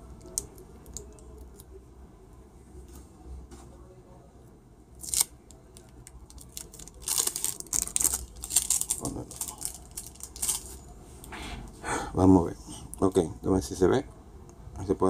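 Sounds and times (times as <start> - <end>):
adhesive tape crackling: 5.0 - 10.7.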